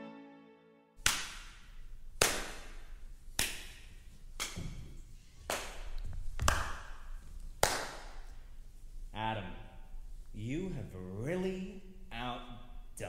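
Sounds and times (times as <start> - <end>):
sharp hand claps echoing: 1.0 - 4.9, 5.5 - 8.4.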